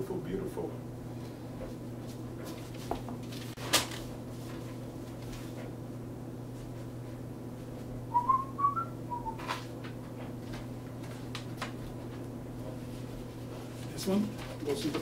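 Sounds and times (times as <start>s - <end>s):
low electrical hum: 0.0s - 15.0s
person whistling: 8.1s - 9.5s.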